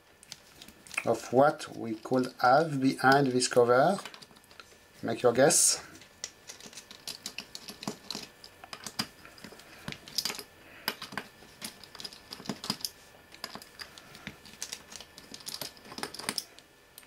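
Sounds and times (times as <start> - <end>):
metal parts clicking and tapping: 3.0 - 4.7, 6.0 - 17.0.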